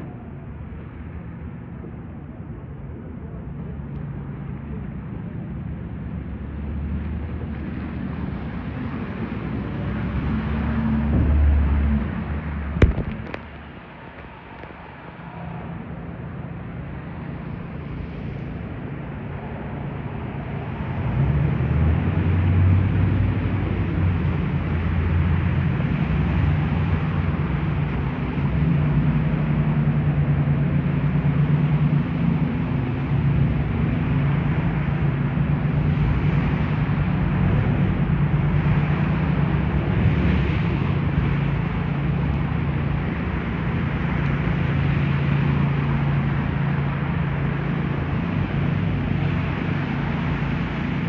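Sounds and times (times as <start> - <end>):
vehicle engines humming: 0.0 - 51.0.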